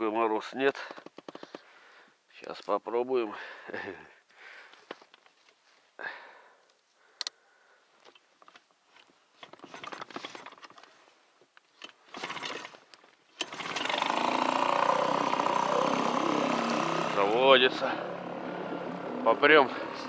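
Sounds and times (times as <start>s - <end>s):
starter cord pulls: 9.4s - 10.9s, 11.8s - 20.0s
outboard motor running: 12.1s - 12.7s, 13.4s - 20.0s.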